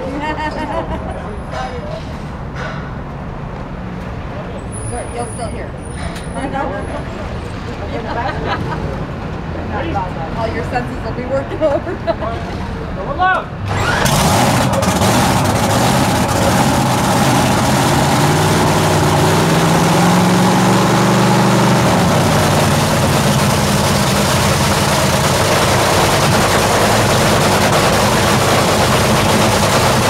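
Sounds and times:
drag racing car engine idling: 13.7 - 30.0.

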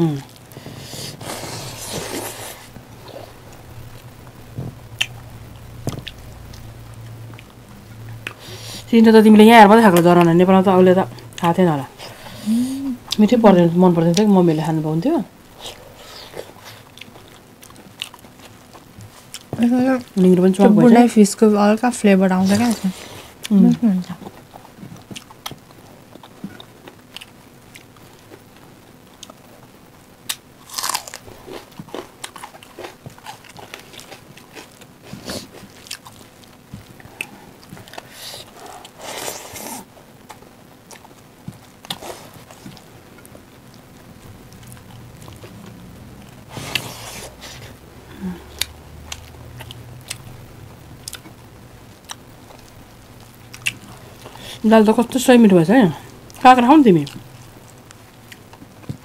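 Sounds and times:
wet chewing: 15.7 - 19.5, 53.5 - 54.4
crunchy bites: 30.2 - 34.8.

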